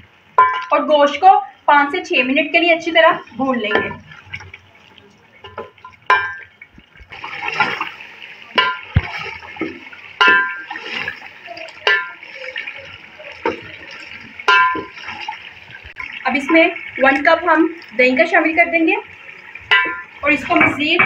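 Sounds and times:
spatula clinking on pot: 14.5 - 15.0, 19.7 - 21.0.

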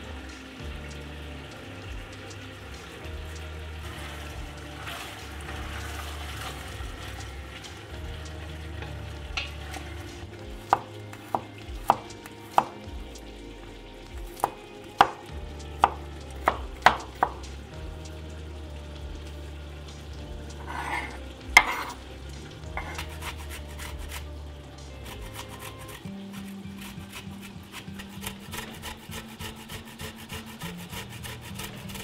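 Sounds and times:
chicken sizzling in a pot: 0.0 - 32.0
wooden spoon stirring: 1.6 - 32.0
knife chopping on wooden board: 10.7 - 12.8, 14.4 - 15.2, 15.8 - 17.4, 20.7 - 22.0, 22.8 - 23.4.

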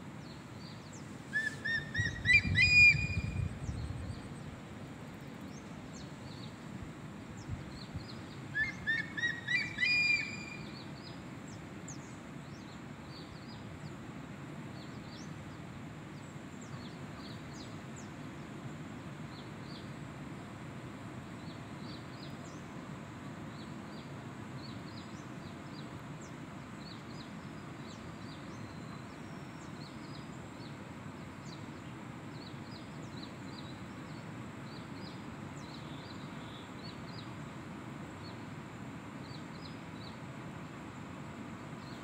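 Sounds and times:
small birds chirping: 0.2 - 4.5.

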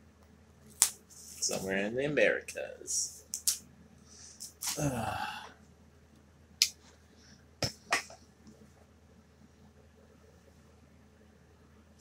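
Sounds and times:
man's throaty sound: 4.6 - 5.5.

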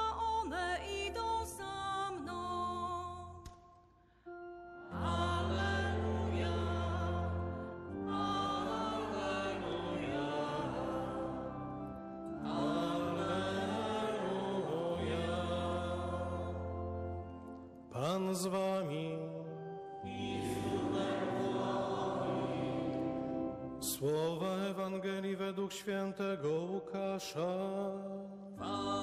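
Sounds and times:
organ accompaniment: 4.2 - 29.0
person singing: 4.8 - 11.5, 12.3 - 16.8, 17.9 - 29.0.

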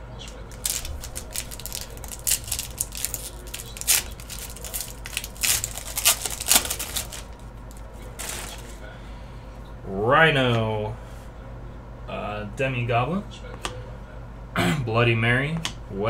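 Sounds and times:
foil wrapper crinkling and tearing: 0.3 - 8.8.

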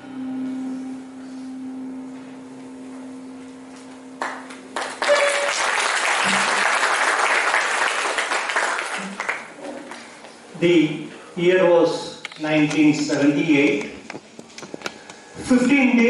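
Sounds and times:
audience applauding: 4.2 - 10.1.

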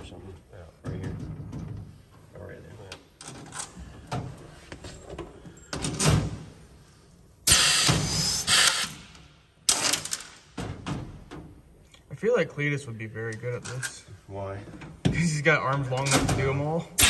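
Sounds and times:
knocks and handling noises: 0.8 - 6.6
pneumatic tool air burst: 7.4 - 10.0.

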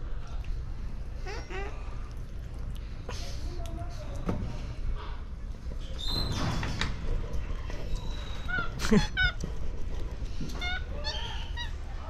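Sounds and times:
chirping animal calls: 7.9 - 9.5, 10.5 - 12.0.

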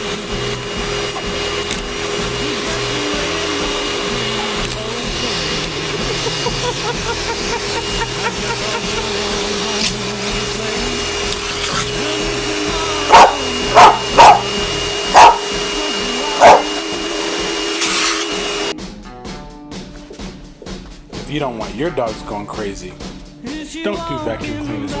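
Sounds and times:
vacuum cleaner motor whine: 0.0 - 18.8
dog barking: 13.1 - 14.5, 15.1 - 15.5, 16.4 - 16.8.

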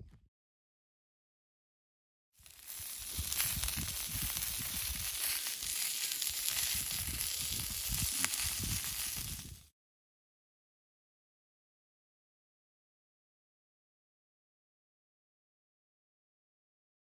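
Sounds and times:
fat crackle: 2.4 - 9.7
food sizzling in a pan: 2.4 - 9.7
gusty wind buffeting: 2.8 - 5.2, 6.4 - 9.7.

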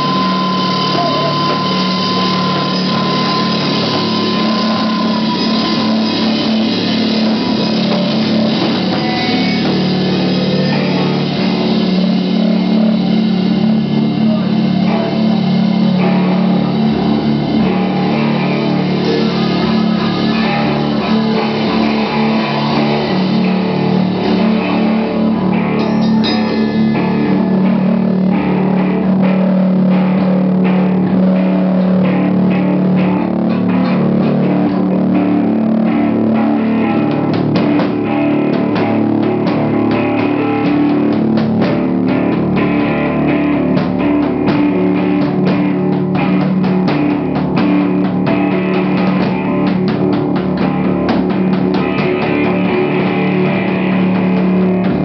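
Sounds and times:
cymbal hits: 0.0 - 35.4
rock band playing: 0.0 - 55.0.

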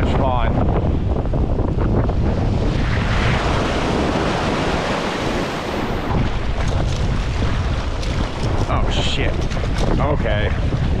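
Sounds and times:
wind rumbling on microphone: 0.0 - 11.0
surf washing over rocks: 2.5 - 11.0.

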